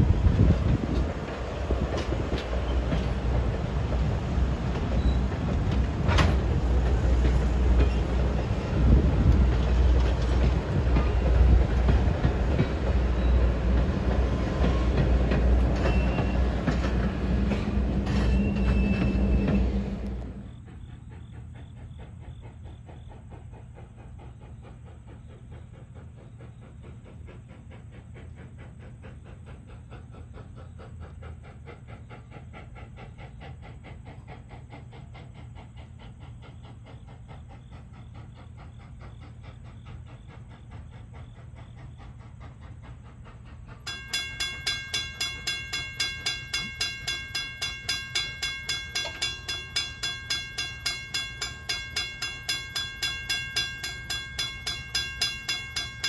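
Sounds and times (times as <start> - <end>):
distant steam locomotive rumble: 0.0 - 56.0
railroad crossing bell ringing: 15.8 - 19.6, 43.8 - 56.0.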